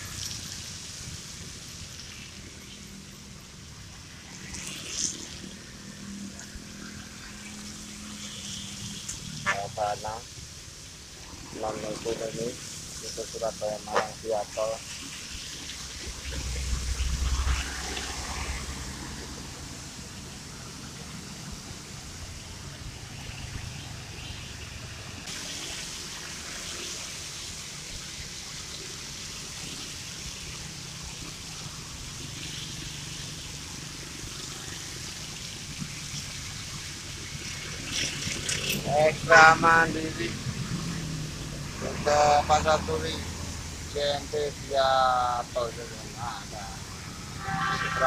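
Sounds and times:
tyres hissing on wet road: 0.0 - 48.0.

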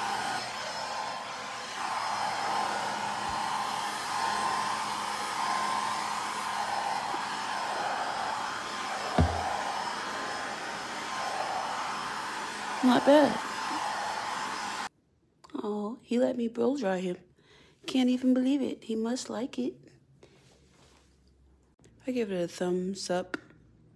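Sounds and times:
pet dryer air rush and whine: 0.0 - 14.9
short thump: 9.1 - 9.6.

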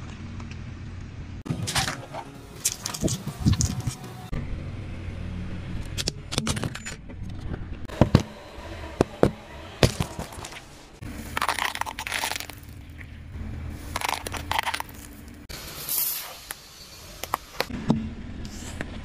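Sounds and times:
low engine rumble: 0.0 - 15.7
tyre crushing objects: 1.5 - 4.0, 7.9 - 13.0, 13.8 - 15.4.

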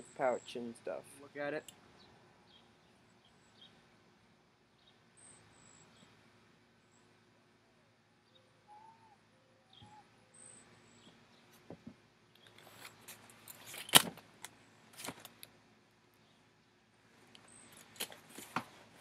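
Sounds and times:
faint bird chirps: 4.7 - 6.2, 6.8 - 11.6
buckles and metal frame clicking: 12.4 - 15.5.

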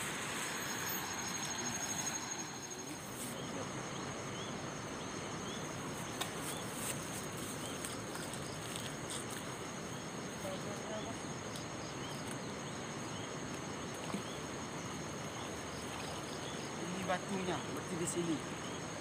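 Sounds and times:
river rushing: 0.0 - 3.2
insects trilling: 0.0 - 19.0.

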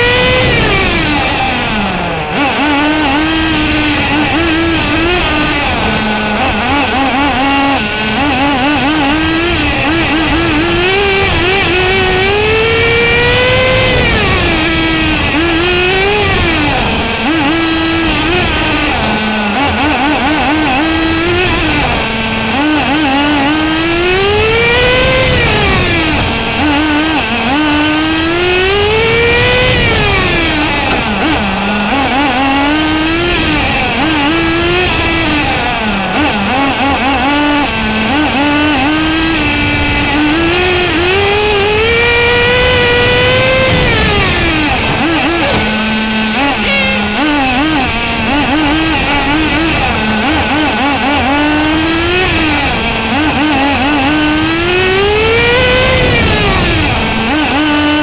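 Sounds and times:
rc car nitro engine revving: 0.0 - 58.0
wind noise: 0.0 - 58.0
tyre noise: 28.8 - 57.6.

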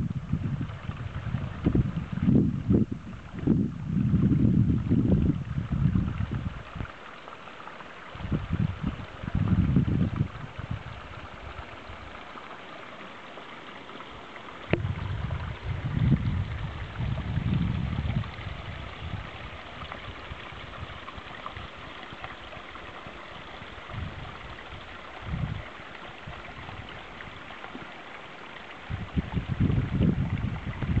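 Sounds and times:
wind buffeting microphone: 0.0 - 6.9, 8.1 - 12.2, 14.7 - 27.5, 28.8 - 31.0.

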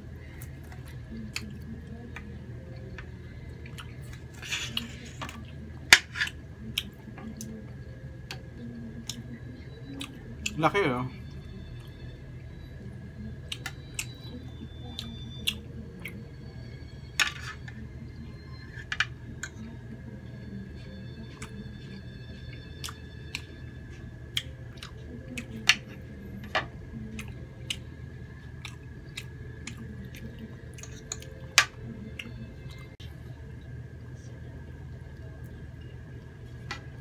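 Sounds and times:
chewing: 3.5 - 5.6.

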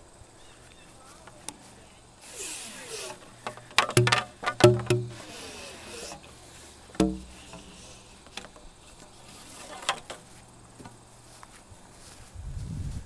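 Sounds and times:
light steady hiss: 0.0 - 13.0
sharp knock with deep thud: 7.0 - 7.3.

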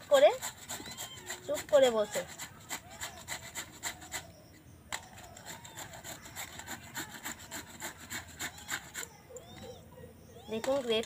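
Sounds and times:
papaya rasping on metal grater: 0.0 - 4.4, 5.0 - 9.2.

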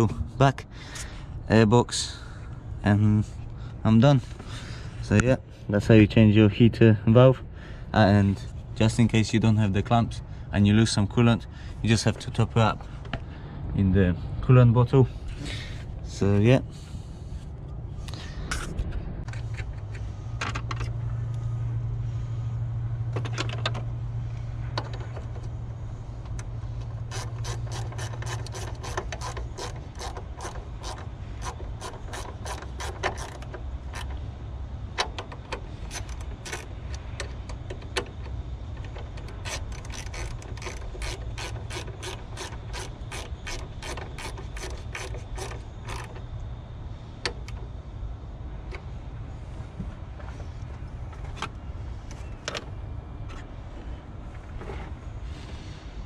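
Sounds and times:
steady low hum: 0.0 - 56.0
ratchet wrench clicking: 26.8 - 34.2, 35.0 - 46.2.

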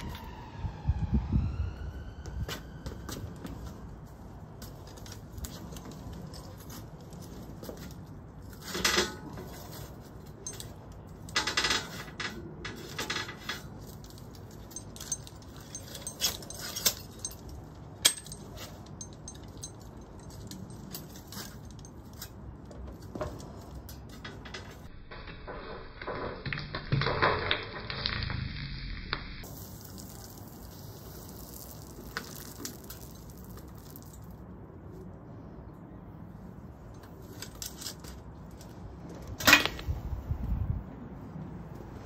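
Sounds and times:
metal tongs and chain clinking: 8.6 - 22.5.

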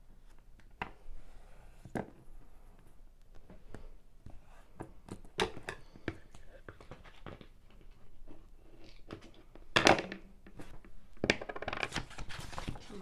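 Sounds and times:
paper rustling: 11.8 - 13.0.

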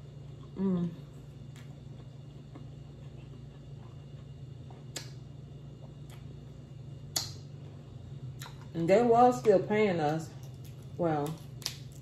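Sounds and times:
steady low hum: 0.0 - 12.0
wet mouth clicks: 4.9 - 5.2, 7.1 - 7.4.

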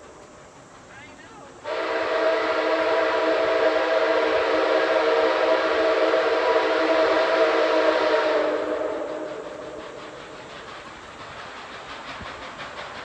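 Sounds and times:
steam locomotive whistle blast: 1.6 - 10.0.

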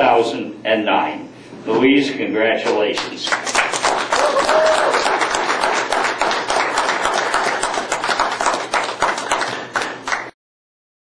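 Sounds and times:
people applauding: 3.0 - 10.4.

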